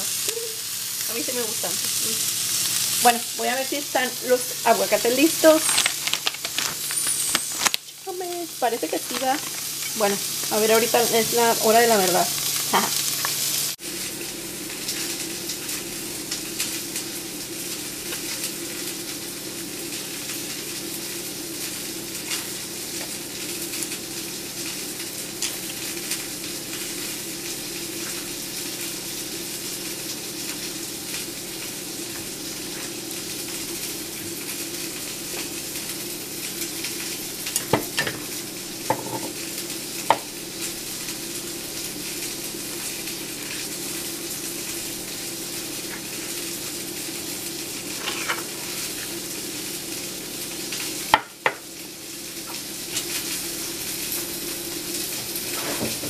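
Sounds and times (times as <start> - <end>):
steak sizzling in a frying pan: 0.0 - 56.0.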